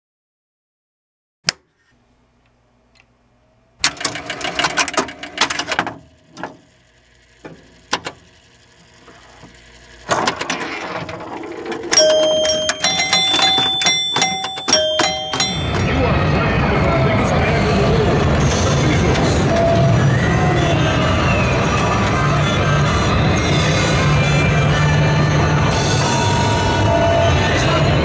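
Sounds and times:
pinball machine relays clattering: 3.8 - 6.7, 10.0 - 17.3
music: 12.0 - 28.0.

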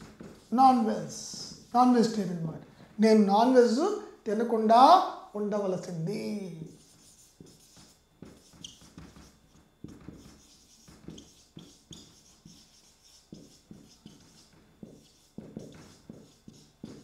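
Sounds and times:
marker writing on whiteboard: 0.0 - 1.7, 6.7 - 17.0
felt tip squeaks: 8.4 - 9.2.

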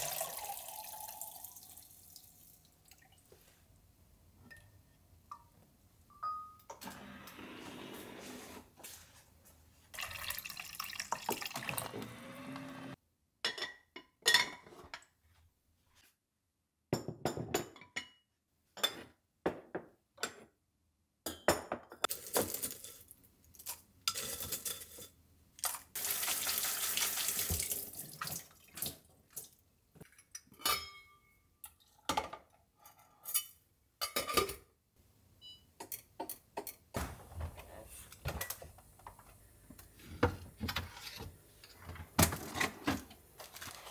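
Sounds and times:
water pouring into bowl: 0.0 - 3.2, 10.0 - 11.9
glass jars and dishes clinking: 6.1 - 6.8, 30.1 - 32.4.

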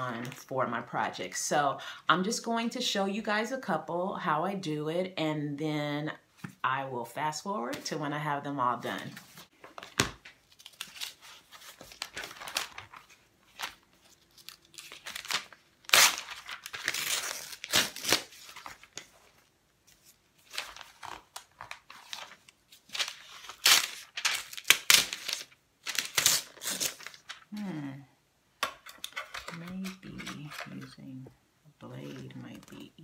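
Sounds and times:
paper rustling: 9.0 - 27.5, 28.8 - 31.2
paper pages ripping: 9.2 - 27.8.

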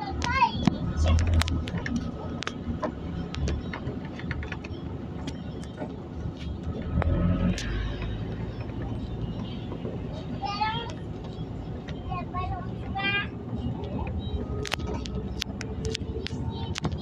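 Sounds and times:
bus body rattling: 0.0 - 17.0
bus engine rumble: 0.0 - 17.0.

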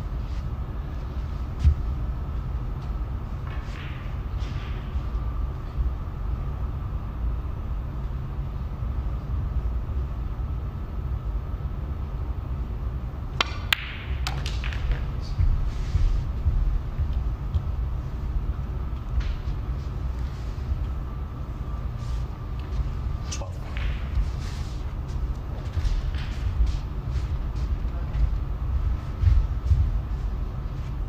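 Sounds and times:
low hum: 0.0 - 31.0
cue tip striking ball: 3.5 - 5.0, 13.4 - 15.7, 23.6 - 25.0
snooker balls clicking: 13.3 - 15.7, 22.6 - 26.5.

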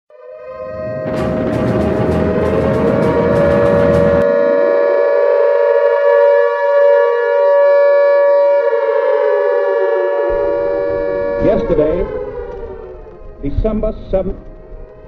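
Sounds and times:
air-raid siren wailing: 0.1 - 15.0
loud rumbling noise: 0.7 - 4.4, 10.3 - 15.0.

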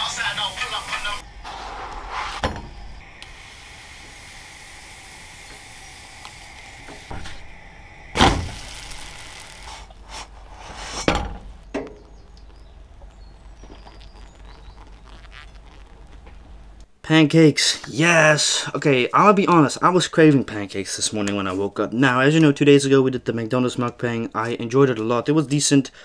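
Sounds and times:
faint steady hiss: 0.0 - 26.0.

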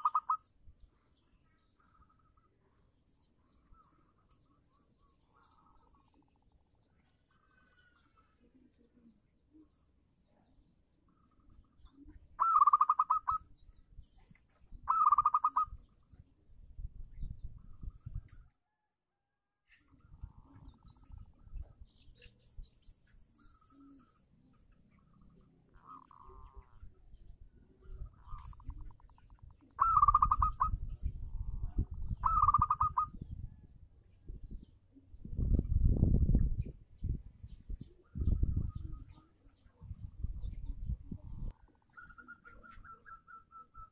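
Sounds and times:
dove cooing: 0.0 - 0.4, 12.0 - 13.5, 14.8 - 15.8, 27.7 - 30.8, 31.6 - 33.3, 41.1 - 43.9.

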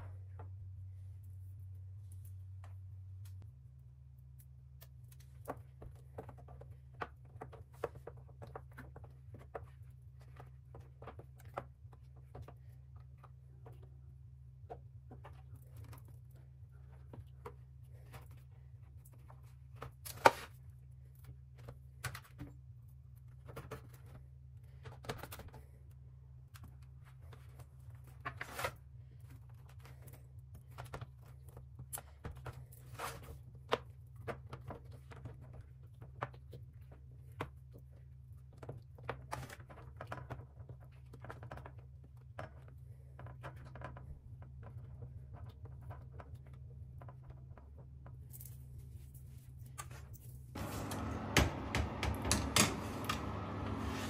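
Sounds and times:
steady low hum: 46.7 - 54.0.

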